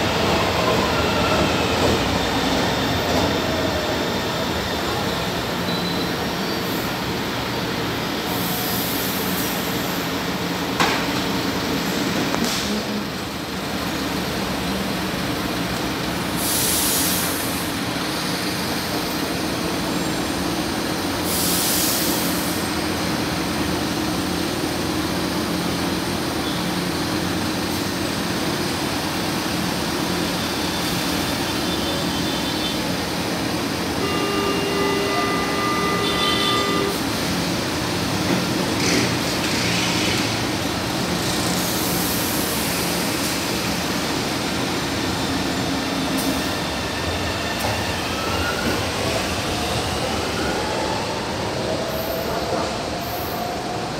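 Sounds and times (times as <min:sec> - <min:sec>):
train equipment humming: 0:22.2 - 0:46.4
steady warning tone: 0:33.8 - 0:37.4.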